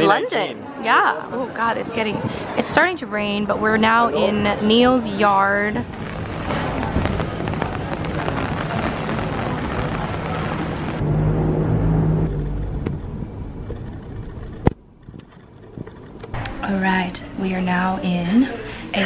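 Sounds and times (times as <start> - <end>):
city noise rush: 0.0 - 19.0.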